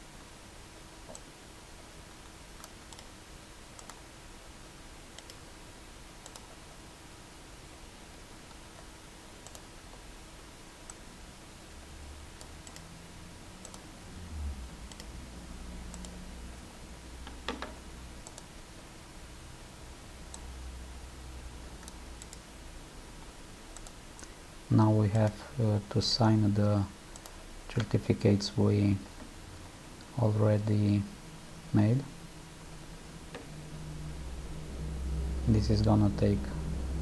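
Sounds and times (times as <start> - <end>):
faint steady hum: 0.0 - 37.0
computer mouse clicks: 1.1 - 1.3, 2.2 - 3.2, 3.8 - 4.0, 5.1 - 5.4, 6.2 - 6.6, 8.5 - 10.0, 12.4 - 12.9, 13.6 - 13.9, 14.8 - 15.2, 15.9 - 16.2, 17.3 - 18.5, 20.3 - 20.5, 21.8 - 22.5, 23.7 - 24.4, 27.1 - 28.0.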